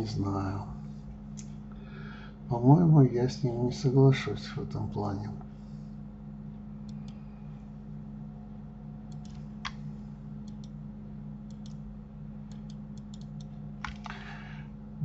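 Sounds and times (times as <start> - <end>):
steady low hum: 0.0 - 15.0
mouse and keyboard clicks: 9.1 - 9.8, 10.5 - 10.8, 11.5 - 11.8, 12.5 - 14.1.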